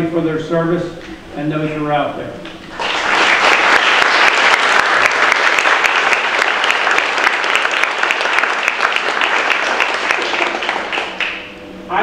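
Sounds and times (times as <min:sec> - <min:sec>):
audience applauding: 0:02.7 - 0:11.5.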